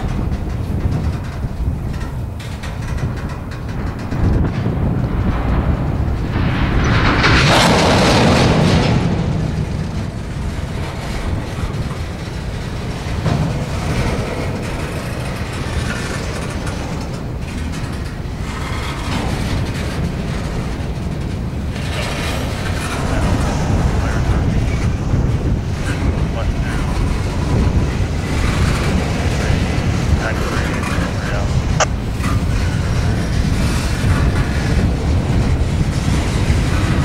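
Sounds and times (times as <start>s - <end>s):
wheel clicks on rails: 0.0s - 24.0s
freight train wheels rumbling: 0.0s - 37.0s.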